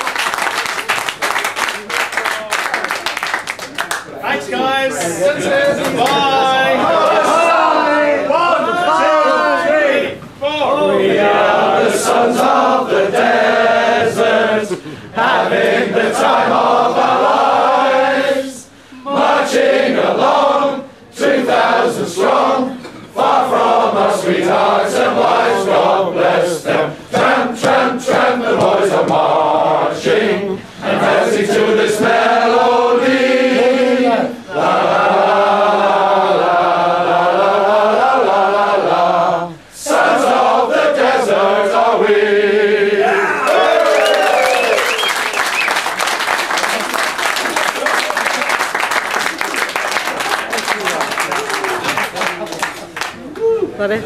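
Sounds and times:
men singing in unison: 10.9 - 43.0.

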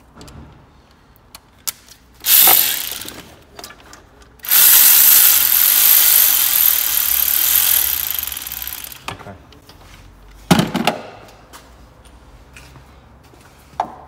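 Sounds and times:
cordless electric ratchet running: 2.2 - 3.4, 4.4 - 9.1.

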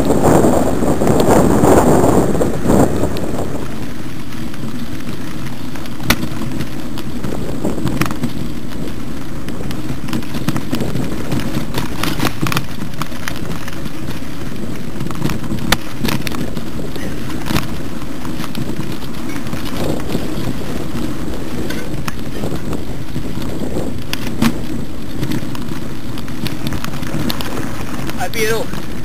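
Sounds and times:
wind and tyre rumble: 0.0 - 29.0
bike clicks and knocks: 3.1 - 29.0.

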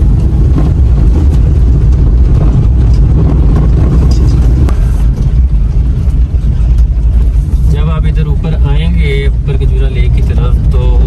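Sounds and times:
knocks and rattles of car: 0.0 - 8.7
low rumble of engine and tyres: 0.0 - 11.0.

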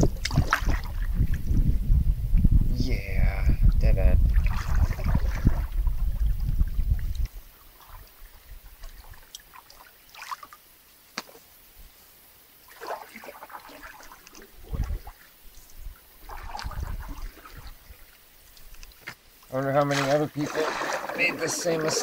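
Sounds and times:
paddle swishing in water: 0.0 - 1.5, 4.3 - 10.6, 12.7 - 18.9, 19.8 - 22.0
low rumble on microphone: 0.0 - 9.2, 14.5 - 18.1
water dripping: 5.4 - 11.4.

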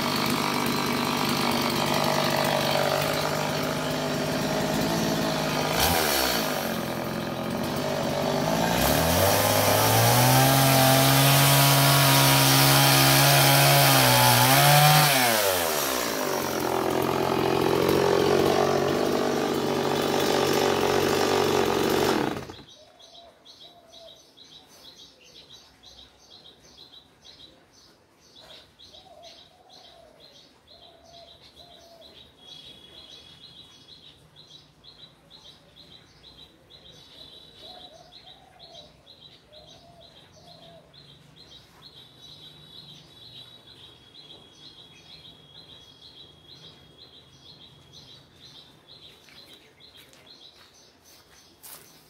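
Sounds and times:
chainsaw running: 0.0 - 22.7
birds chirping: 0.0 - 52.0.

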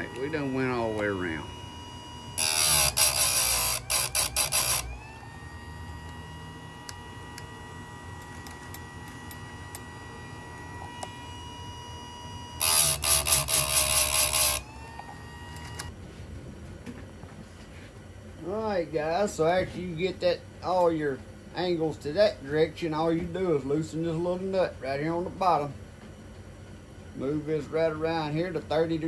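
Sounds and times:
grinding wheel on steel: 0.0 - 15.9
motor whining: 0.0 - 15.9.

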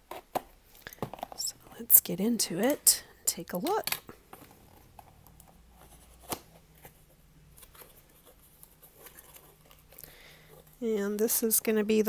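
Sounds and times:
paper rustling: 4.3 - 10.8.

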